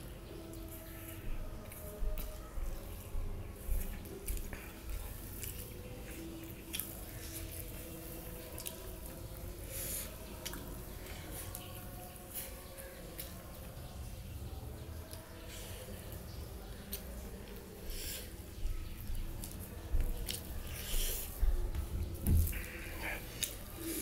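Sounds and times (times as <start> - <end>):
mouth clicks and smacks chewing: 4.0 - 7.1, 10.4 - 10.8, 22.5 - 23.8.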